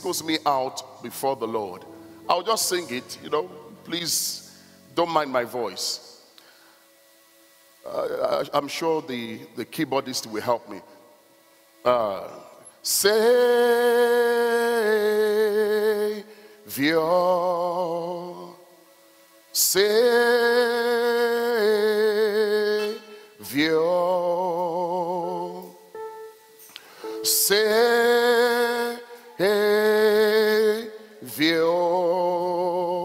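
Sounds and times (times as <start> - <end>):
man singing: 11.9 - 18.6, 19.6 - 25.9, 27.0 - 33.0.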